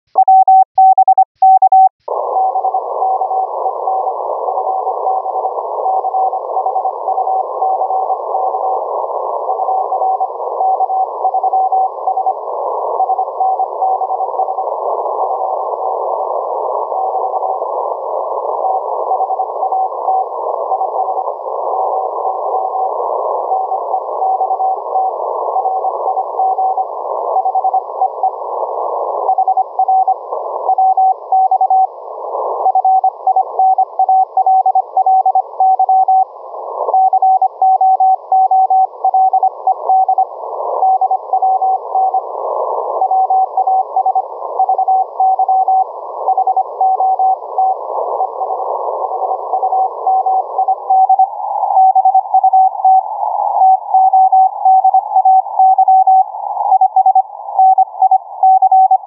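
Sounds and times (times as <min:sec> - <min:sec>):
morse code tone: 0:00.1 - 0:03.6
radio band noise hiss: 0:02.1 - 0:58.4.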